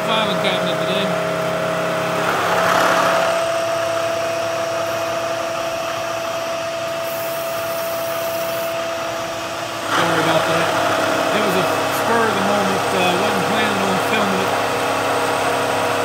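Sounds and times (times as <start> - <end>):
low machine tone: 0.0 - 16.0
milling machine spindle hum: 0.0 - 16.0
hiss of metal cutting: 6.9 - 8.8.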